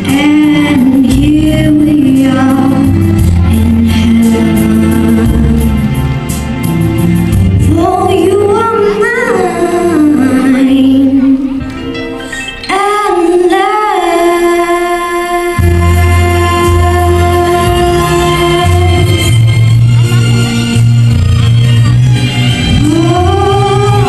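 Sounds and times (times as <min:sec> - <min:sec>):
girl singing into microphone: 0:00.0 - 0:06.0, 0:07.6 - 0:19.6, 0:22.7 - 0:24.0
backing music with bass and beat: 0:00.0 - 0:13.6, 0:15.5 - 0:24.0.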